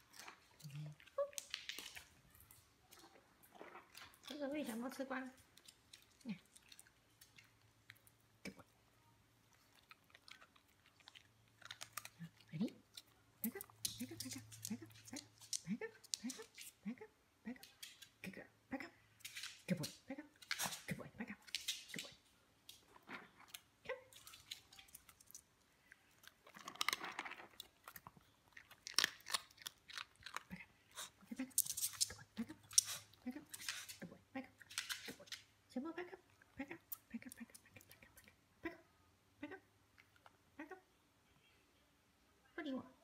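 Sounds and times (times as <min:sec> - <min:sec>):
dogs chewing and lip-smacking: 0:00.0 - 0:08.3, 0:09.4 - 0:16.8, 0:23.5 - 0:34.1.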